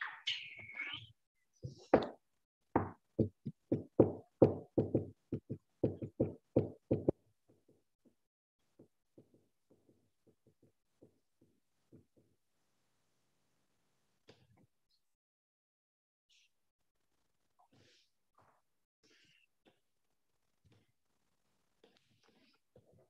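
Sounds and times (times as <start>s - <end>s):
hands knocking on desk: 1.6s - 2.2s, 2.8s - 7.2s.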